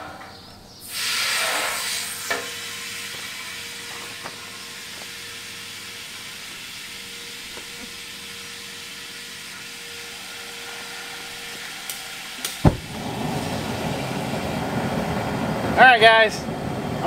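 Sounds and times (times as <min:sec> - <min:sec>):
hose water running into steel pot: 0:00.9 - 0:14.4.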